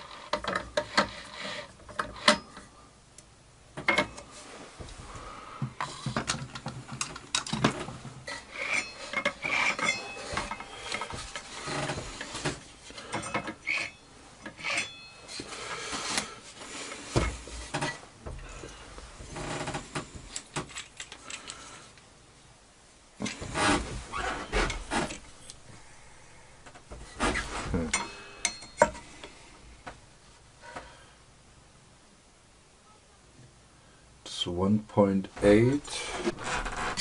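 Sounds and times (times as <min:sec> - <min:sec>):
saw blade ringing: 0:08.6 - 0:11.0, 0:13.2 - 0:15.4, 0:28.0 - 0:28.9
metal clinks and taps: 0:27.9 - 0:29.1.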